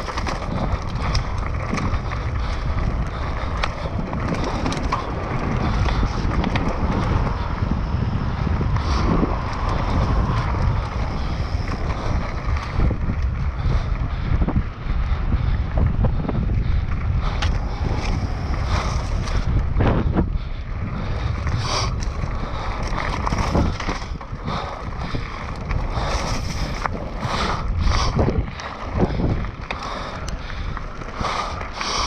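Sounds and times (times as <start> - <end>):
bike knocks and rattles: 0.0 - 14.6, 21.0 - 31.4
bike tyres on dirt trail: 0.0 - 32.0
wind buffeting microphone: 0.0 - 32.0.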